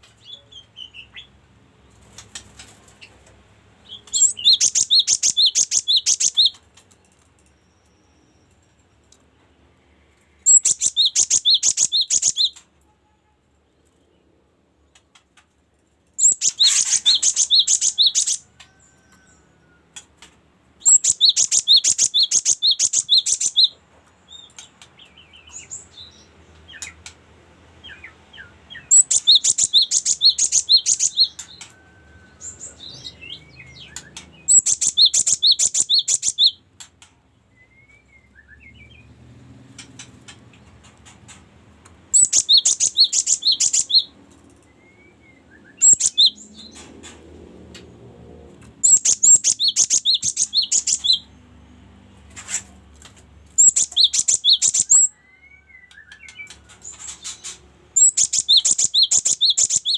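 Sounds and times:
soft bird calls: 16.2s - 20.1s, 20.8s - 27.1s, 27.8s - 36.6s, 42.1s - 47.2s, 48.8s - 51.3s, 52.3s - 59.9s.

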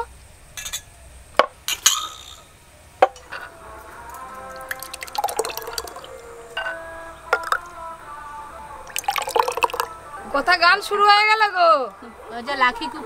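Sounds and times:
faint background music: 0.0s - 13.0s
glass clinking: 0.6s - 0.9s, 1.7s - 2.4s, 3.0s - 7.7s, 8.9s - 10.0s.

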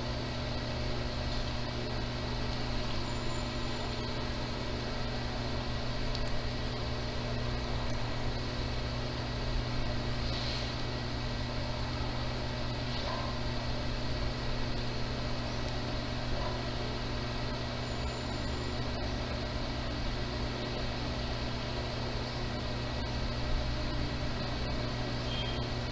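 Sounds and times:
background hum: 0.0s - 25.9s
even hiss: 10.2s - 10.9s.

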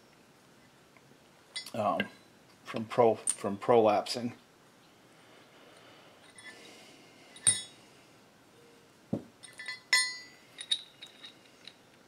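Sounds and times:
metal parts clinking: 7.3s - 7.8s, 9.4s - 12.0s.

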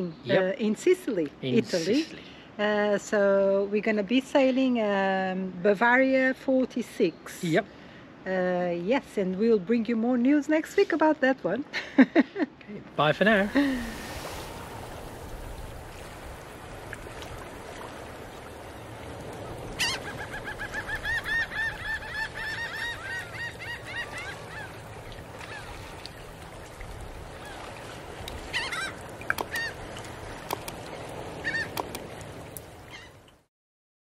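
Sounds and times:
outdoor background hiss: 0.0s - 33.5s
honking bird calls: 19.7s - 24.8s, 28.5s - 29.8s, 31.4s - 32.0s.

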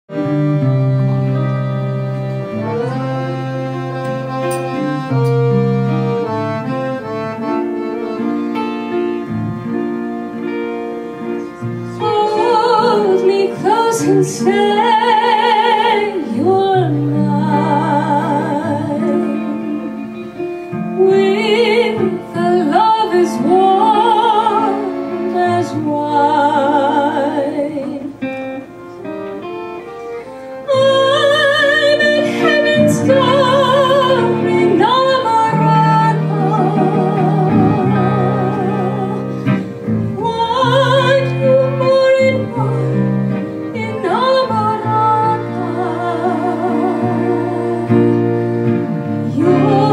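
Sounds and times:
piano: 0.1s - 49.9s
woman singing a ballad: 12.0s - 28.3s, 30.6s - 48.4s, 49.2s - 49.9s.

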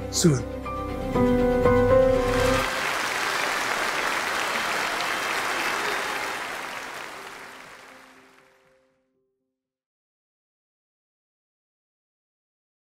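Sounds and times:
audience applauding: 2.1s - 8.7s.

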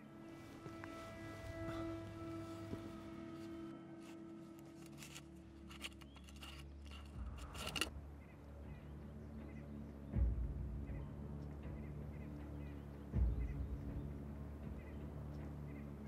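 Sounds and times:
jar lid clicking and scraping: 4.8s - 7.9s.

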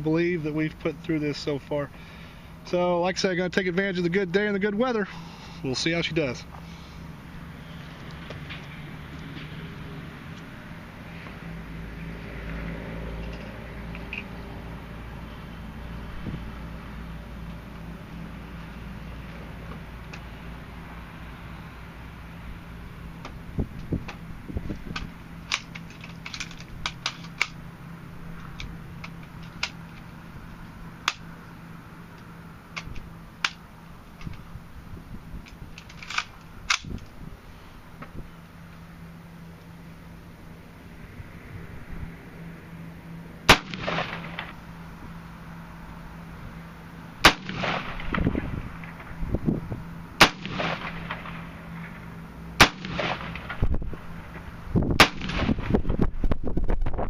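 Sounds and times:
rifle shots with echoes: 43.5s - 44.5s, 47.2s - 48.2s, 50.2s - 51.5s, 52.6s - 53.6s, 55.0s - 55.7s.

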